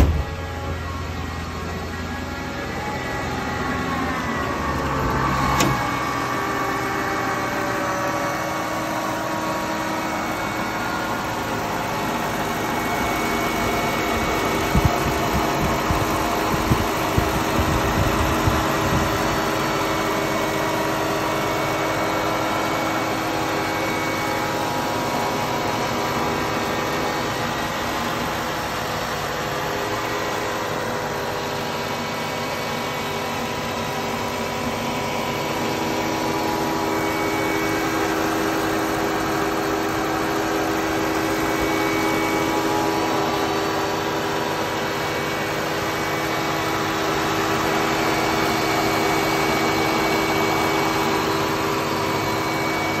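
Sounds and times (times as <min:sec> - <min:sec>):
car engine idling: 0:00.0 - 0:53.0.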